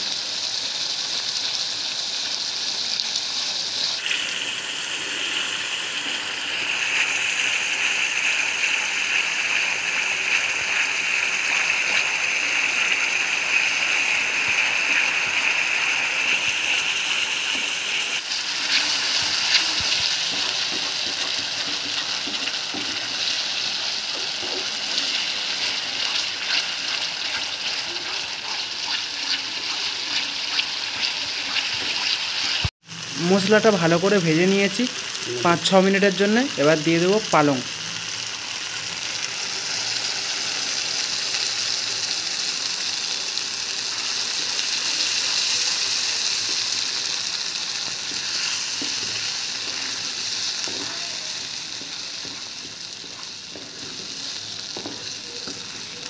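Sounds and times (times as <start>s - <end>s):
paste sizzling in hot oil: 0.0s - 56.0s
wooden spatula stirring: 18.6s - 32.6s.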